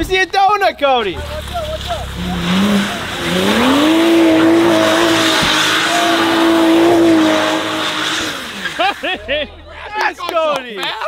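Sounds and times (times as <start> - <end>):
car engine revving: 1.0 - 9.2
tyres spinning and hissing: 1.3 - 9.1.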